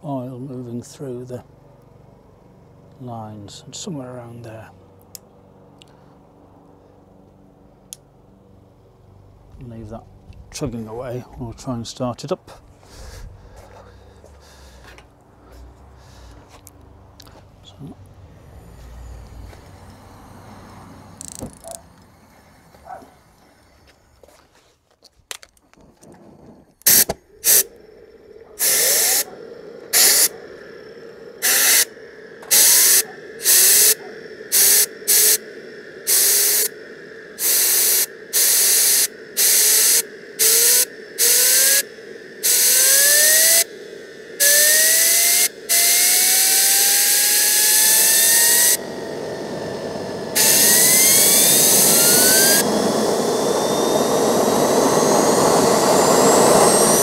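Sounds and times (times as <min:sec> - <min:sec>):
gas turbine whine rising: 0:00.0 - 0:57.0
compressed air blasts: 0:26.8 - 0:57.0.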